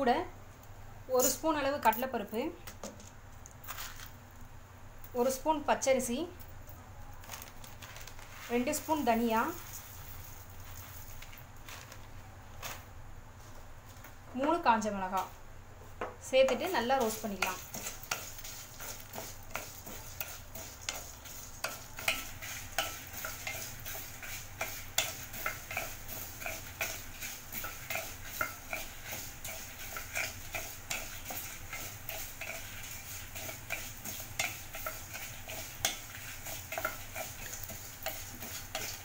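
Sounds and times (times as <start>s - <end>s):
light oil sizzle: 7.4s - 11.6s, 16.2s - 39.0s
wooden spatula scraping spices: 8.1s - 12.8s, 16.4s - 39.0s.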